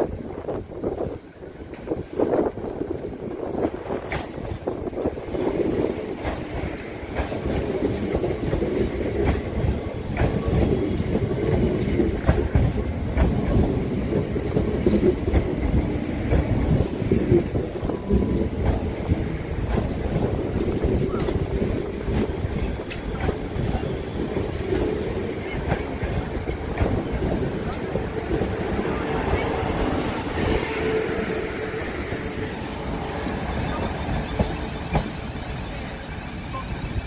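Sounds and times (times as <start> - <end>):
train passing rumble: 0.0 - 37.0
wheels clicking over rail joints: 5.7 - 30.6.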